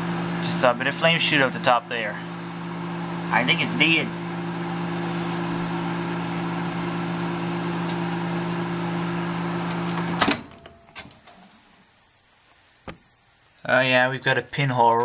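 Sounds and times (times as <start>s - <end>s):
microwave oven humming: 0.0s - 12.0s.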